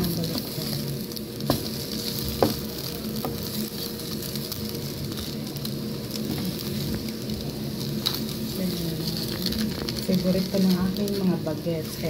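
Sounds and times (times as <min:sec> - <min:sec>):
meat and egg sizzling in a pan: 0:00.0 - 0:12.0
spatula scraping and tapping pan: 0:01.4 - 0:03.9.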